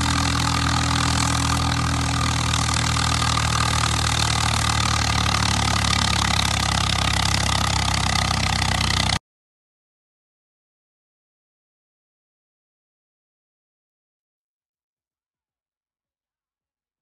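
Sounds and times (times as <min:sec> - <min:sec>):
tractor diesel engine under load: 0:00.0 - 0:09.2.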